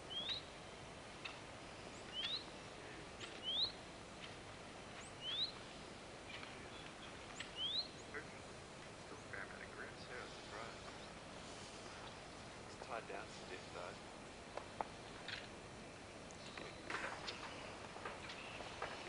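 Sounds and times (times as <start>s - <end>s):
faint outdoor hiss: 0.0s - 19.0s
small bird whistling: 0.1s - 0.5s, 1.9s - 2.5s, 3.2s - 3.8s, 5.0s - 5.6s, 7.4s - 8.1s.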